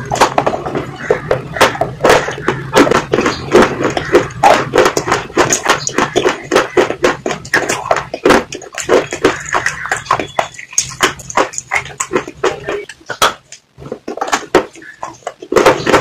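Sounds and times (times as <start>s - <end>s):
chewing crunchy food: 0.0s - 16.0s.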